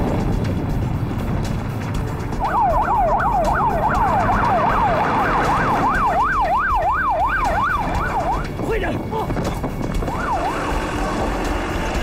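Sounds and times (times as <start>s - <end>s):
low rumble: 0.0s - 12.0s
police sirens yelping: 2.4s - 8.6s, 10.0s - 11.8s.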